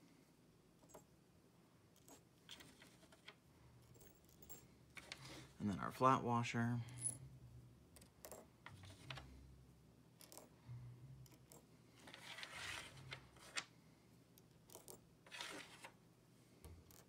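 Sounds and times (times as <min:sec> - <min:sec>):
rubbing scrape: 0:12.0 - 0:13.1, 0:15.3 - 0:15.9.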